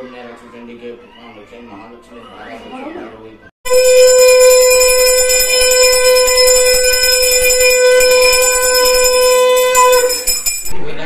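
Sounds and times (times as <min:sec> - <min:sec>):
conch shell blast: 0:03.7 - 0:10.7.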